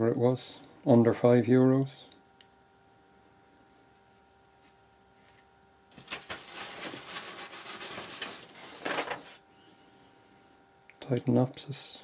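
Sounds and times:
tissue paper rustling: 5.9 - 9.4.

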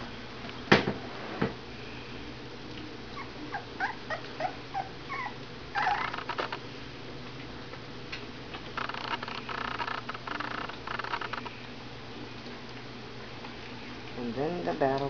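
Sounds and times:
puppies squeaking and whimpering: 3.2 - 6.6, 8.8 - 11.5.

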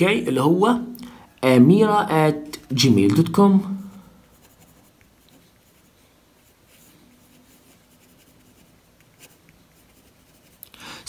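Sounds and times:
pen scratching on paper: 4.2 - 10.6.

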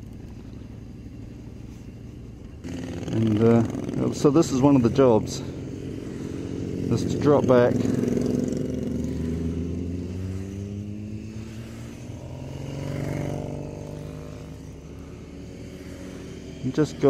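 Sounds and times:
motorcycles riding past: 0.0 - 17.0.

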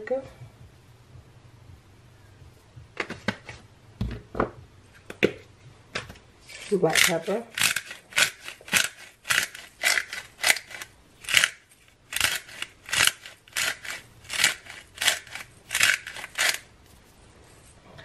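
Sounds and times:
pepper mill grinding: 6.4 - 16.8.

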